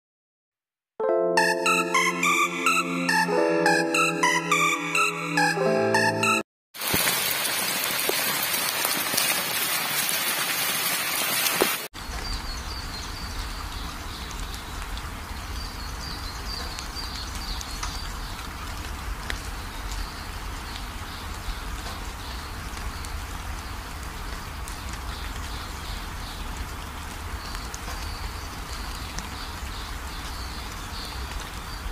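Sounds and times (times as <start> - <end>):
water rushing over rocks: 6.8 - 11.9.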